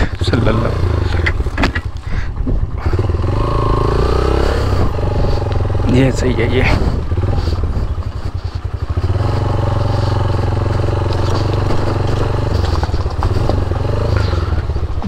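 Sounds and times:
motorcycle engine pulling uphill: 0:00.0 - 0:15.0.

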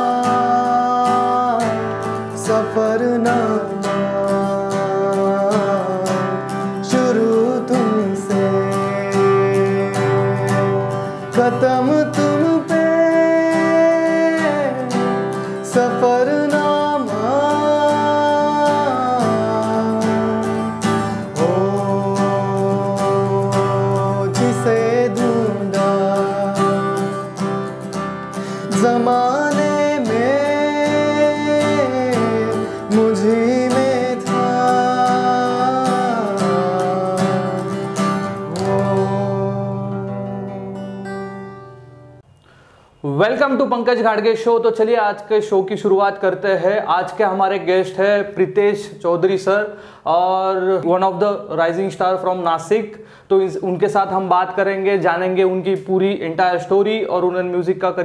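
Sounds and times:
man singing: 0:00.0 - 0:41.4, 0:43.0 - 0:58.0
strummed acoustic guitar: 0:00.0 - 0:42.8.

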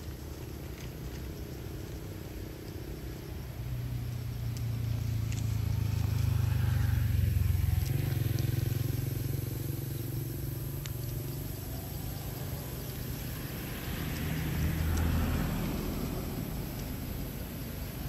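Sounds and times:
vehicle engine rumbling: 0:00.0 - 0:18.0.

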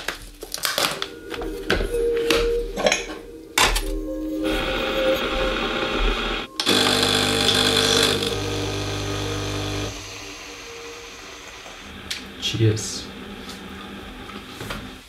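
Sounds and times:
coffee machine pump humming: 0:05.5 - 0:12.4.

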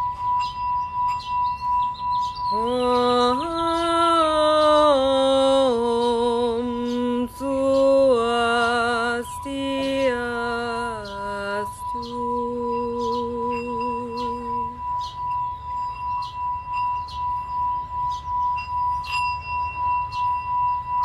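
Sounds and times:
singing bowl ringing: 0:00.0 - 0:21.0
woman chanting: 0:02.5 - 0:14.9.

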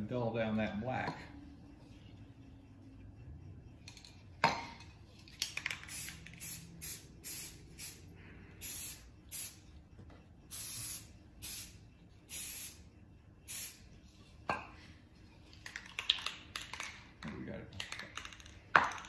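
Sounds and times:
spray paint hissing in bursts: 0:05.6 - 0:09.7, 0:10.5 - 0:13.9.

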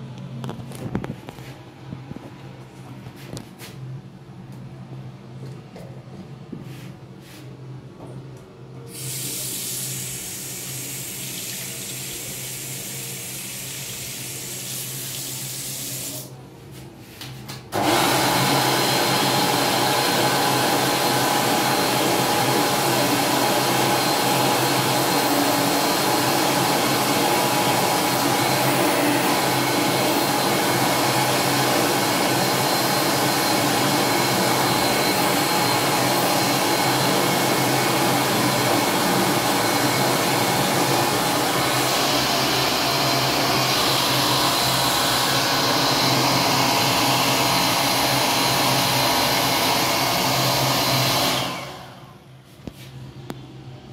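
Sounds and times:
hand dryer blowing: 0:08.9 - 0:16.4, 0:17.7 - 0:52.8
tap running water: 0:10.5 - 0:16.2.

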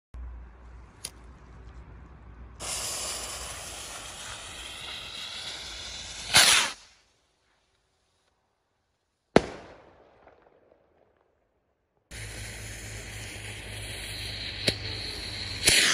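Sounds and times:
firework bang: 0:02.6 - 0:06.8, 0:12.1 - 0:15.9
rocket launch whoosh: 0:02.6 - 0:06.9, 0:12.1 - 0:15.9
firework fuse hissing: 0:02.6 - 0:07.3, 0:12.1 - 0:15.9.

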